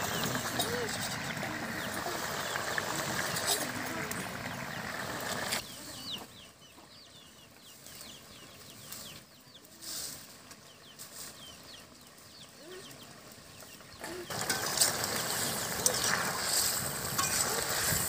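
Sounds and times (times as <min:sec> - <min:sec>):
chickens clucking: 0:00.0 - 0:09.8, 0:10.4 - 0:18.0
steady hiss: 0:14.0 - 0:18.0.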